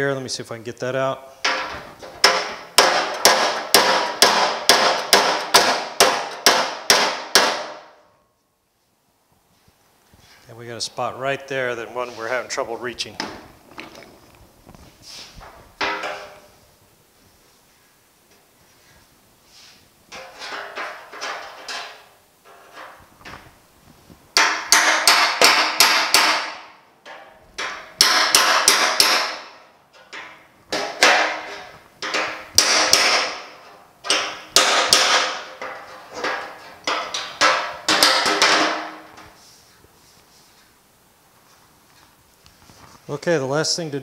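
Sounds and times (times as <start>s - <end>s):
hammer striking metal: 1.4s - 8.0s, 24.4s - 33.5s.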